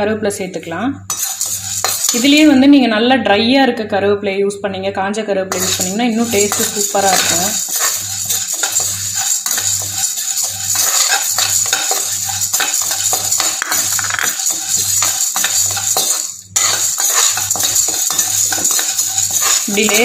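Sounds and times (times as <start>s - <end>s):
grains pattering on a pan: 1.1s - 2.6s, 5.5s - 20.0s
spatula scraping a metal pan: 1.1s - 2.6s, 5.5s - 20.0s.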